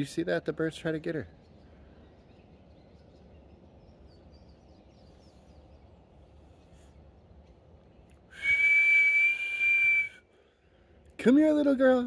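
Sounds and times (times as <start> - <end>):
faint bird chirps: 1.2 - 8.5
person whistling: 8.3 - 10.2.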